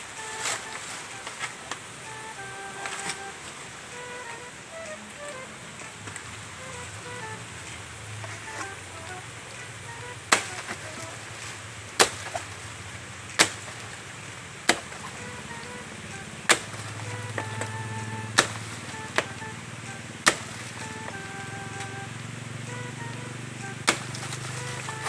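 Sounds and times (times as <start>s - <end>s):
background music: 0.0s - 12.1s, 13.1s - 25.0s
machete chopping plant trunk: 10.3s - 10.8s, 12.0s - 12.6s, 13.4s - 14.0s, 14.7s - 15.2s, 16.5s - 17.7s, 18.3s - 19.3s, 20.2s - 21.2s, 23.8s - 25.0s.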